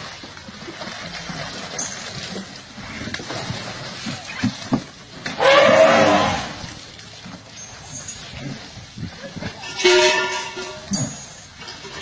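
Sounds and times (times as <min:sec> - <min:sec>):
elephant splashing water in tub: 0:00.0 - 0:12.0
elephant crying: 0:05.4 - 0:06.6.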